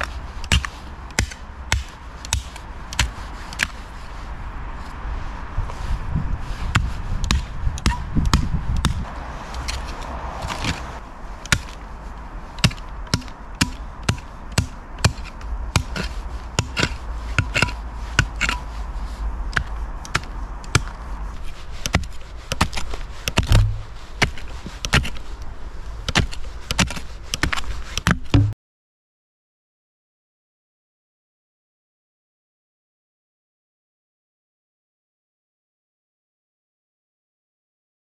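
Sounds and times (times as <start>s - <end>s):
shovel chopping into rocky earth: 0.0s - 3.8s, 6.7s - 11.8s, 12.6s - 18.7s, 19.5s - 25.3s, 26.0s - 28.6s.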